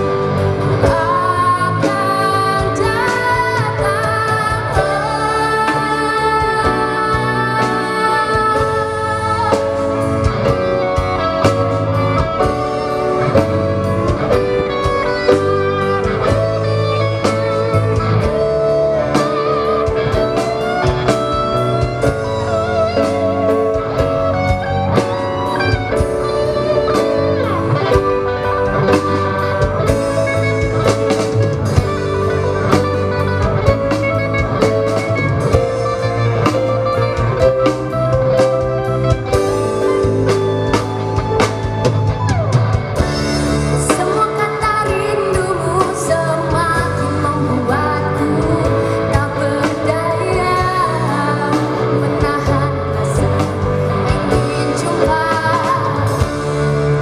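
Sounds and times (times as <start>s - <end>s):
drum kit: 0.0s - 57.0s
electric guitars: 0.0s - 57.0s
woman singing: 0.2s - 30.9s, 43.2s - 57.0s.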